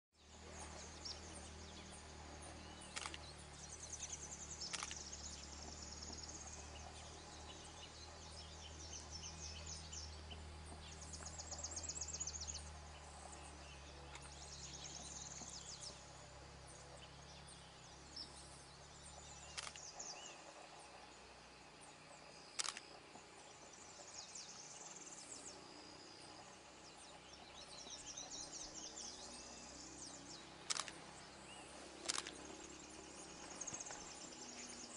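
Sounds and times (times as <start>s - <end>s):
small birds chirping: 0.2s - 34.9s
steady low rumble: 0.2s - 34.9s
sharp clicks: 2.9s - 3.3s, 4.6s - 5.1s, 19.5s - 20.0s, 22.5s - 23.0s, 30.6s - 31.1s, 32.0s - 32.5s.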